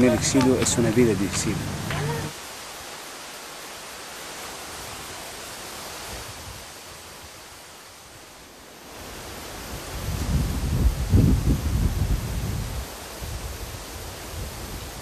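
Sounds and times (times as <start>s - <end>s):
steady outdoor hiss: 0.0s - 15.0s
wind rumbling on microphone: 9.1s - 15.0s.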